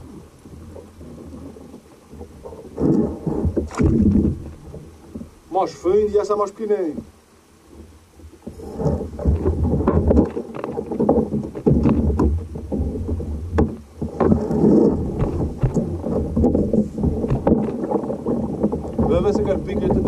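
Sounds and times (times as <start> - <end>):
splashes: 0.0 - 6.0
wind rumble on microphone: 0.0 - 6.1, 6.9 - 20.0
water slapping kayak hull: 0.0 - 20.0.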